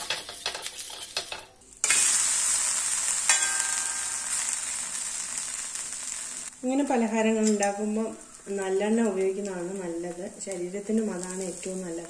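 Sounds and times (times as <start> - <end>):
flatbread sizzling in oil: 0.0 - 6.6.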